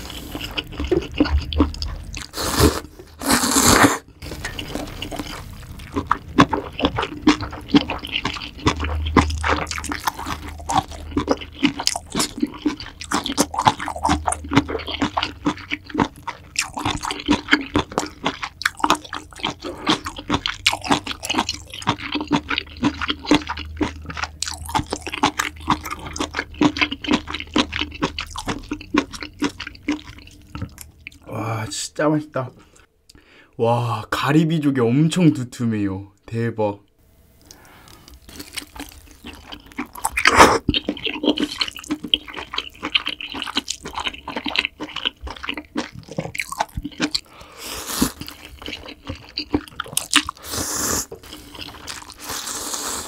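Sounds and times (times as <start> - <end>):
wet chewing and mouth clicks: 0.0 - 31.3, 37.4 - 53.0
slurping noodles: 2.2 - 5.5, 39.9 - 42.5, 47.4 - 48.6, 50.2 - 53.0.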